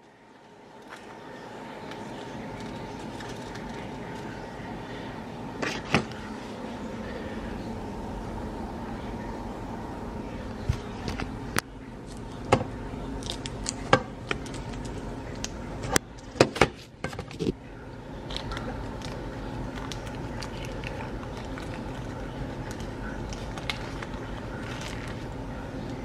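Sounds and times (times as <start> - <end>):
steady low hum: 0.0 - 26.0
plastic wrapping crinkling: 0.4 - 4.6, 13.2 - 17.6, 18.2 - 26.0.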